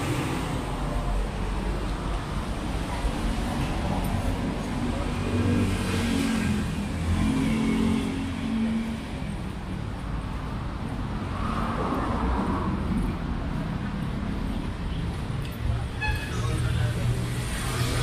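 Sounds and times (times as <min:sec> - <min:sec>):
road traffic passing: 0:00.0 - 0:18.0.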